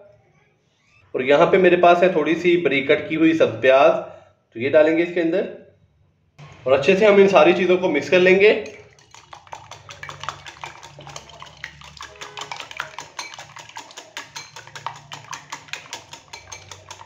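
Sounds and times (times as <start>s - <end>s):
whisk beating eggs in a bowl: 8.6s - 17.0s.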